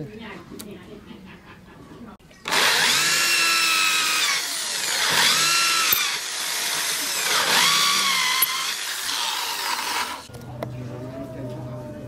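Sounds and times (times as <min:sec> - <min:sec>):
electric drill boring into wood: 0:02.4 - 0:10.3.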